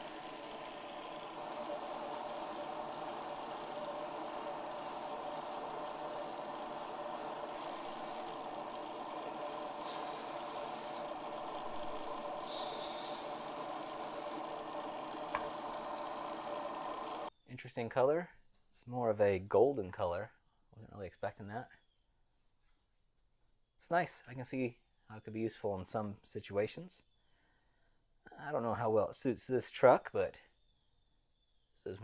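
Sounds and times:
spray booth fan humming: 0:00.0 - 0:17.3
airbrush spraying in hissing bursts: 0:01.3 - 0:17.3.

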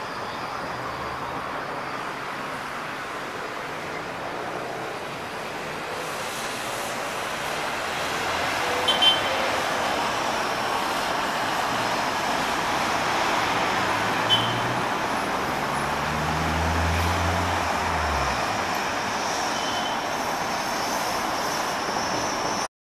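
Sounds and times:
street traffic: 0:00.0 - 0:22.7
bus engine low hum: 0:09.5 - 0:19.3.

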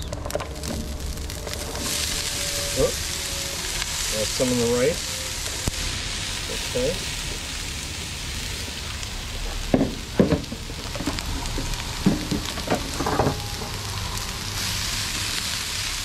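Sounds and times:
vegetables sizzling on griddle: 0:00.0 - 0:16.0
spatula knocking and scraping griddle: 0:09.5 - 0:11.2.

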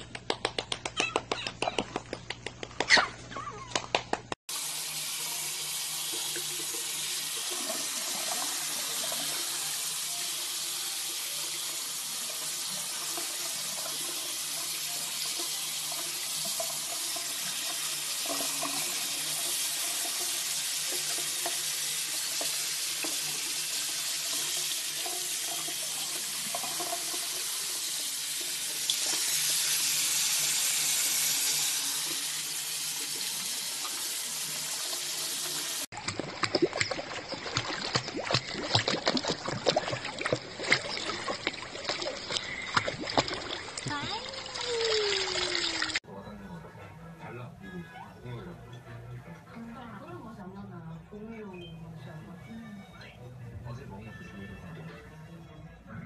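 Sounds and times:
running water hiss: 0:04.5 - 0:35.9.

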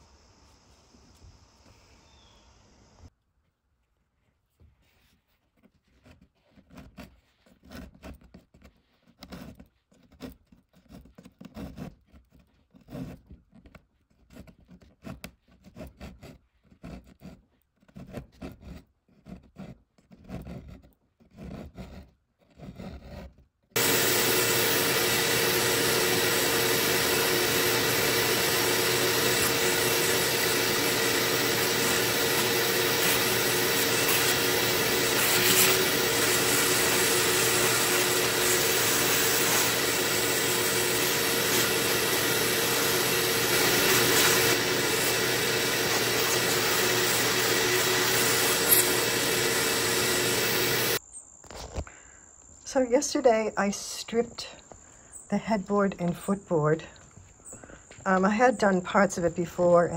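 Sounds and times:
metal pick scraping wood: 0:05.7 - 0:51.0
vacuum running: 0:23.8 - 0:51.0.

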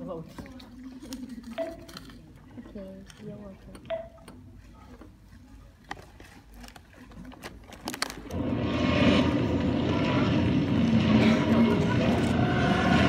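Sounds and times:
loud low rushing sound effect: 0:08.3 - 0:13.0.

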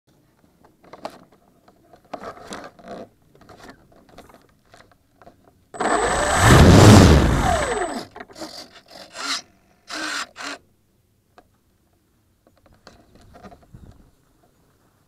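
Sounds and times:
electric motor and propeller whine: 0:05.8 - 0:08.1.

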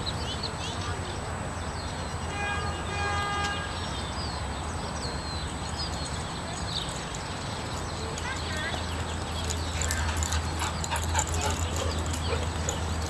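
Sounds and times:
small birds chirping: 0:00.0 - 0:02.9, 0:03.7 - 0:13.0
distant horn: 0:02.3 - 0:03.8.

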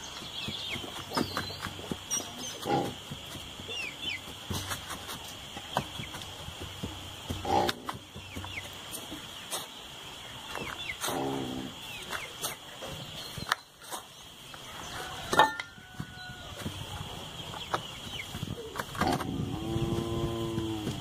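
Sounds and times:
cow mooing: 0:19.2 - 0:21.0.

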